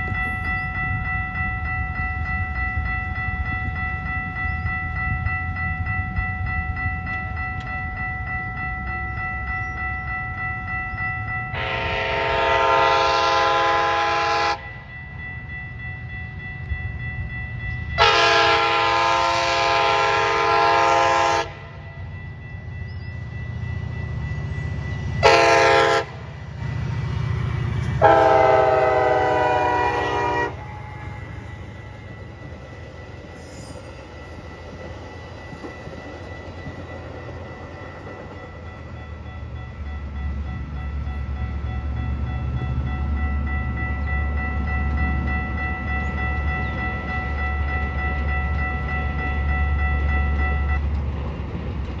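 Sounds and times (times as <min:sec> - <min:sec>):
electronic crossing bell ringing: 0:00.0 - 0:26.1, 0:27.4 - 0:51.0
rumble of passing passenger cars: 0:00.0 - 0:52.0
diesel locomotive horn: 0:11.5 - 0:14.8, 0:18.0 - 0:22.0, 0:25.2 - 0:26.8, 0:27.8 - 0:32.1.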